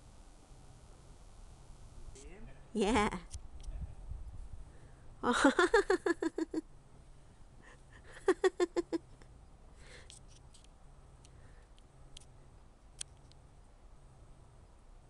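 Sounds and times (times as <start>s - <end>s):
woman laughing: 5.2s - 6.6s, 7.7s - 9.2s.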